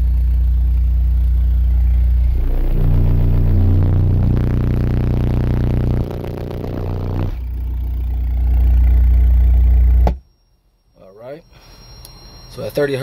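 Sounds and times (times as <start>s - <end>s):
loud low bass drone: 0.0s - 10.1s.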